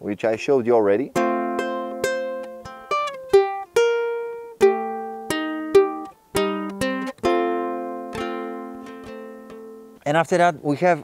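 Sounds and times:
ukulele plucked melody: 0:01.1 - 0:10.0.

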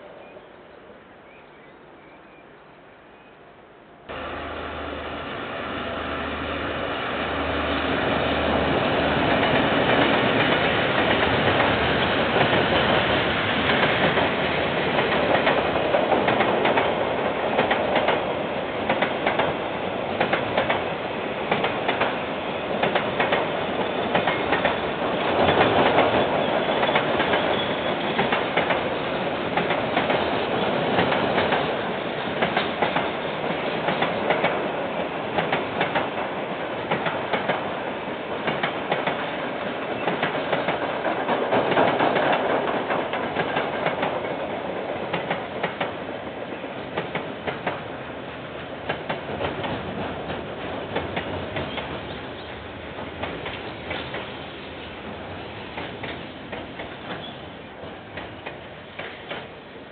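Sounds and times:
train wheels rumbling on rails: 0:04.1 - 0:59.9
clacks over rail joints: 0:13.7 - 0:18.3, 0:18.9 - 0:19.6, 0:20.2 - 0:20.9, 0:21.5 - 0:22.2, 0:22.8 - 0:23.5, 0:24.1 - 0:28.9, 0:29.6 - 0:30.3, 0:30.9 - 0:31.7, 0:32.4 - 0:34.6, 0:35.4 - 0:36.3, 0:36.9 - 0:37.6, 0:38.4 - 0:39.4, 0:40.0 - 0:46.0, 0:47.0 - 0:47.9, 0:48.8 - 0:52.1, 0:53.2 - 0:54.3, 0:55.8 - 0:57.4, 0:58.1 - 0:59.5.

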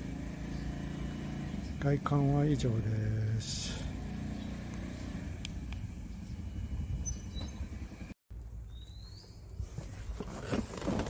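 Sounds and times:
low outdoor rumble: 0:00.0 - 0:08.6.

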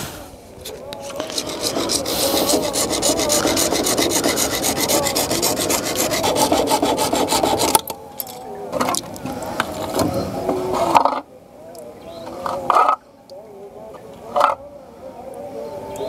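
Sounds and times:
hacksaw cutting plastic pipe: 0:01.1 - 0:07.9.

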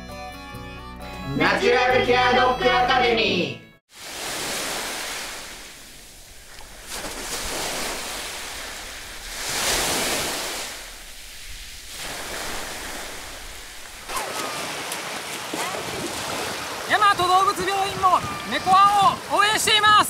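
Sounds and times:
sea surf washing on shore: 0:03.9 - 0:20.0
wind noise on microphone: 0:15.8 - 0:20.0.

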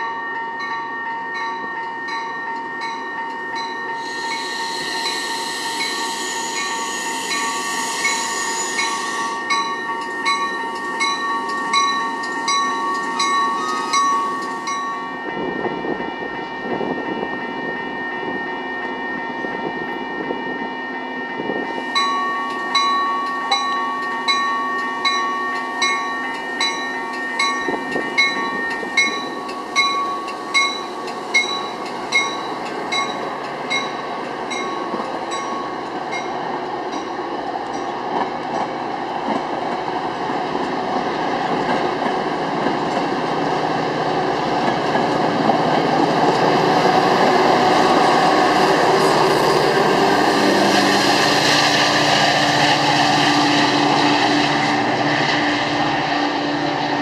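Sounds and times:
crossing warning bell ringing: 0:00.0 - 0:57.0
train rolling on rails: 0:00.0 - 0:57.0
hiss: 0:04.0 - 0:09.4.

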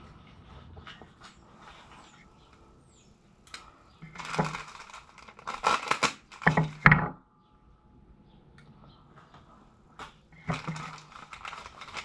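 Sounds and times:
paper packaging crinkling and tearing: 0:04.0 - 0:06.9, 0:10.4 - 0:12.0.

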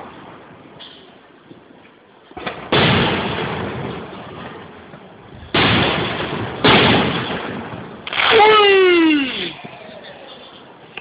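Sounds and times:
firework shells bursting: 0:05.5 - 0:09.5
small firework pops: 0:08.0 - 0:08.4.

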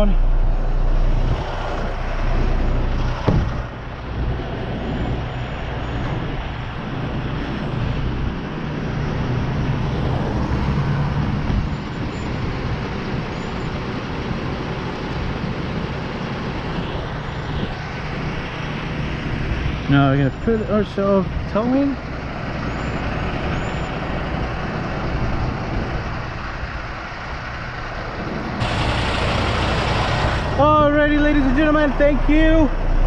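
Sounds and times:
truck engine running: 0:00.0 - 0:33.0
sharp knock: 0:03.2 - 0:03.6.

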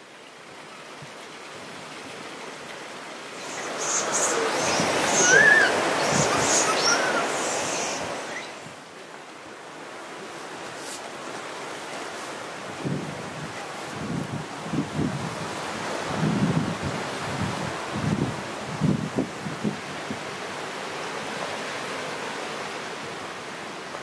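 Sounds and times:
water rushing: 0:00.0 - 0:24.0
monkey calls: 0:03.4 - 0:08.6.

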